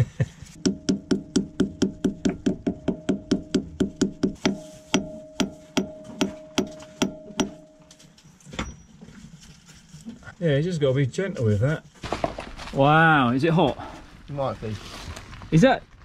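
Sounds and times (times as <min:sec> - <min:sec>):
hammer knocking on metal: 0:00.6 - 0:07.9.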